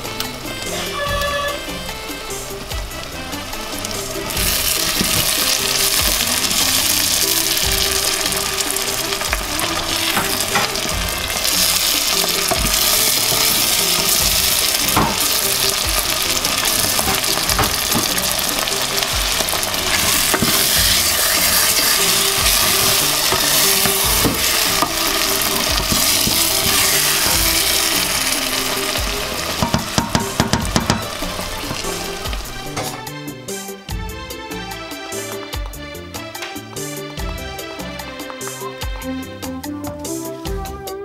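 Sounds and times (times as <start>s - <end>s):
onions sizzling in hot oil: 0.0s - 34.0s
wooden spoon stirring: 3.7s - 33.0s.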